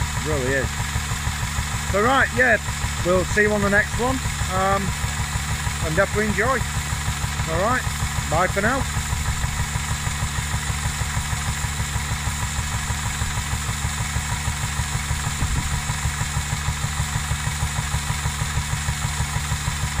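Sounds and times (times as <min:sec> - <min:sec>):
stationary engine running: 0:00.0 - 0:20.0.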